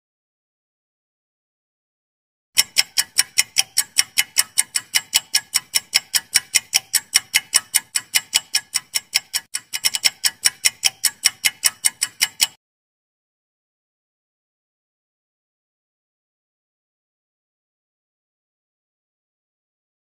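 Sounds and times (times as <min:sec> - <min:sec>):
clock ticking: 0:02.6 - 0:12.6.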